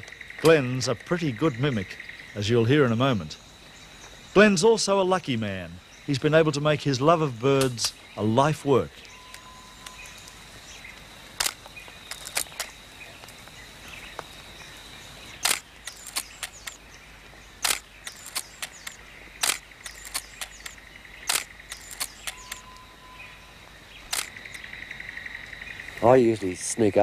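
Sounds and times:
quiet forest ambience: 0.0 - 27.0
faint steady high tone: 8.7 - 10.6, 22.3 - 23.7
camera shutter clicking: 11.4 - 12.7, 15.4 - 16.8, 17.6 - 22.7, 24.1 - 24.6.

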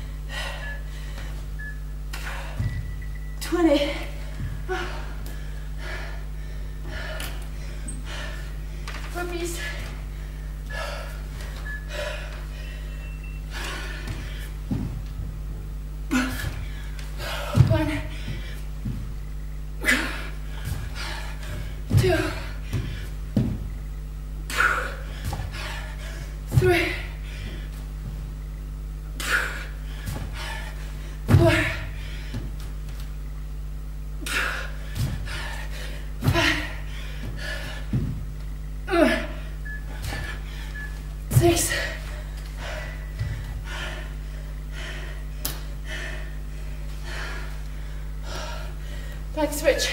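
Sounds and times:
woman breathing hard: 0.0 - 3.2, 4.1 - 15.2, 16.0 - 28.2, 29.1 - 32.6, 33.8 - 41.0, 41.6 - 49.3
low steady hum: 0.0 - 49.9
thuds on wooden floor: 2.4 - 3.1, 13.7 - 19.2, 20.5 - 23.8, 26.5 - 28.3, 31.2 - 33.1, 34.9 - 35.4, 36.2 - 38.5.

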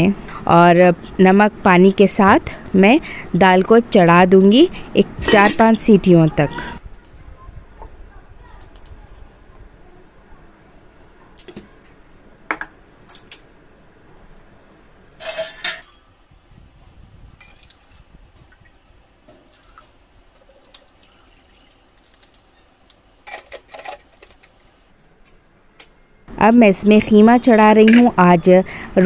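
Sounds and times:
water pouring into cooker: 20.4 - 22.6.

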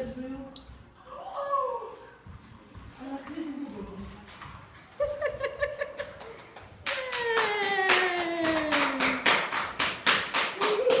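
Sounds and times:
hands clapping applause: 6.0 - 11.0.

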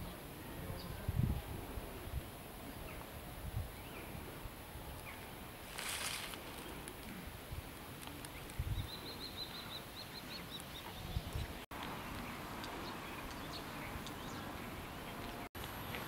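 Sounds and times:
songbird chirping: 8.2 - 16.0.

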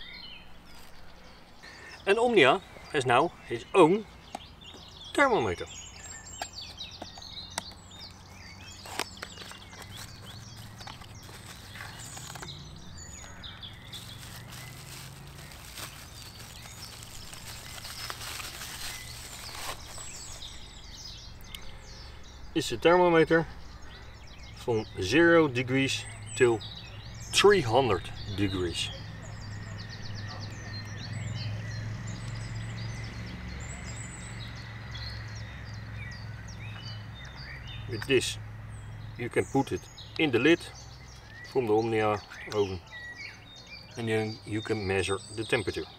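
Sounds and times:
small birds chirping: 0.0 - 45.9
low outdoor rumble: 4.1 - 40.0
bubble wrap crinkling: 8.0 - 20.6
cardboard flaps scraping and rustling: 8.8 - 12.6, 13.7 - 20.5.

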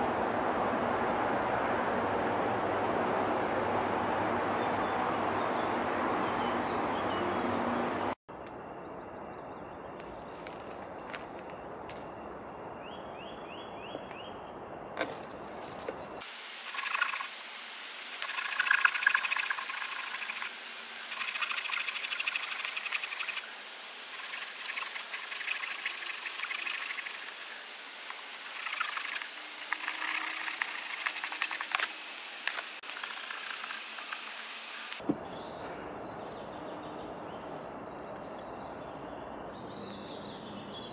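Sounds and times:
bird chirping: 2.9 - 17.3, 32.9 - 40.9
saw rasping through branch: 16.6 - 17.3, 18.1 - 23.4, 24.2 - 35.0.

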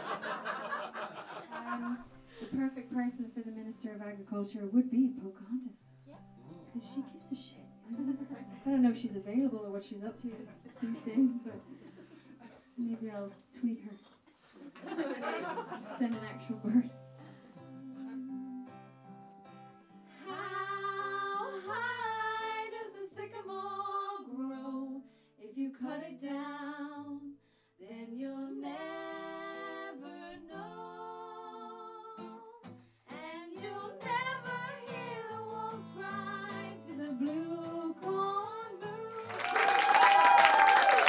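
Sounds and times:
acoustic guitar: 0.0 - 40.1
woman singing: 2.5 - 5.8, 20.2 - 39.5
audience applause: 39.2 - 41.0.

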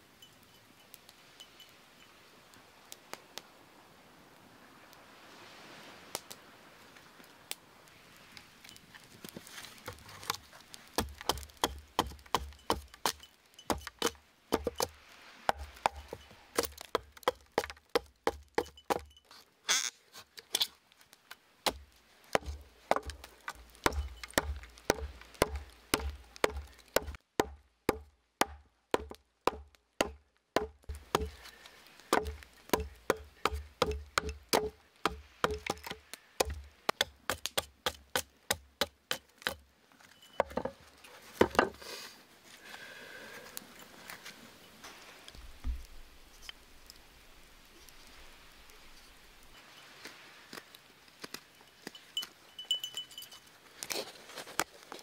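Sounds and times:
hatchet chopping wood: 11.0 - 14.9, 15.5 - 19.1, 21.6 - 31.5, 32.1 - 39.6.

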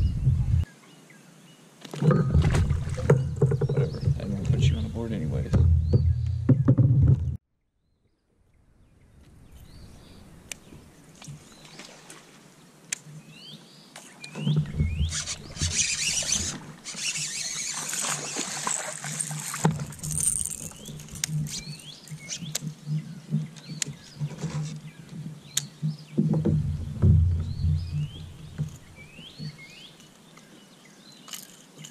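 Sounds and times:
bird chirping: 3.0 - 7.0, 20.1 - 31.6.

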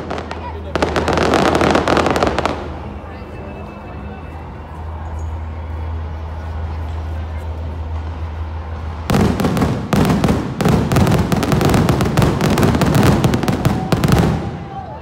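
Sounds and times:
fireworks banging and crackling: 0.0 - 3.1, 8.8 - 15.0.

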